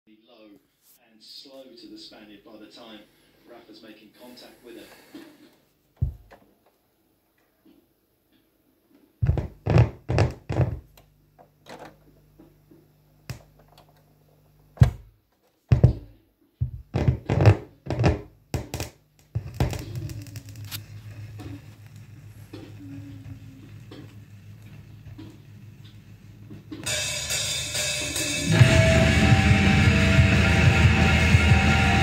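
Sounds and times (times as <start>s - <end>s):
record playing low hum: 0.1s - 32.0s
heavy thumps and clicks: 9.2s - 11.0s, 15.7s - 20.1s.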